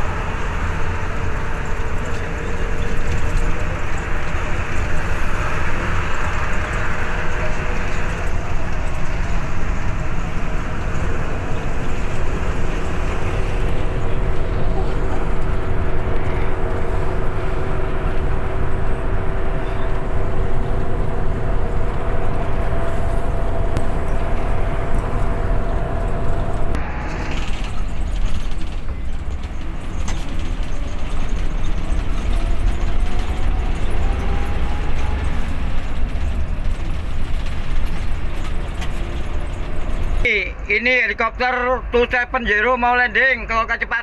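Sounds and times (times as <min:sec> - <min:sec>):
whine: 0:00.0 - 0:42.6
bus engine and road rumble: 0:00.0 - 0:44.0.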